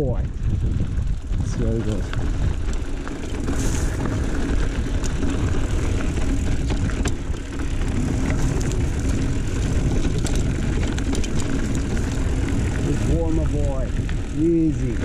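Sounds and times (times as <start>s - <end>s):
bike clicks and rattles: 0.0s - 15.0s
wind and ride rumble: 0.0s - 15.0s.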